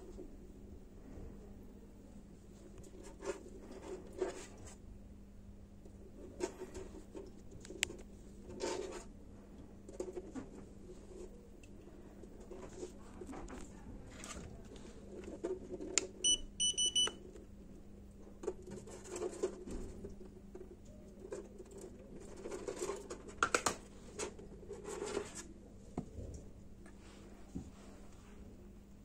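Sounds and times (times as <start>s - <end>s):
short high beeps: 16.2s - 17.1s.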